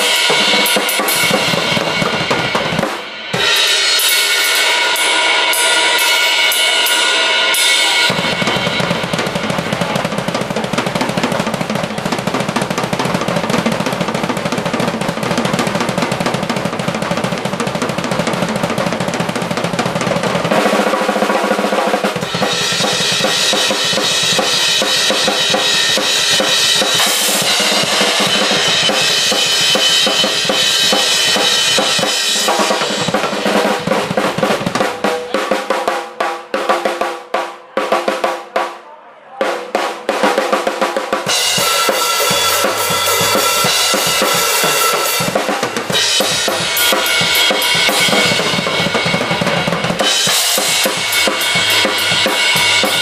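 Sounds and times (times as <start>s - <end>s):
bass drum: 0.0s - 3.0s, 8.1s - 20.6s, 22.2s - 35.3s, 41.3s - 53.0s
cymbals crashing: 0.0s - 10.9s, 22.1s - 35.2s, 41.3s - 53.0s
drum rolls: 0.0s - 38.8s, 39.4s - 53.0s.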